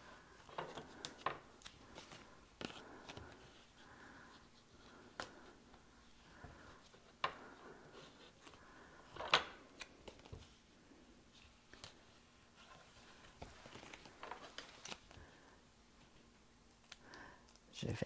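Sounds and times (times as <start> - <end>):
paper card rustling: 12.6 - 15.3.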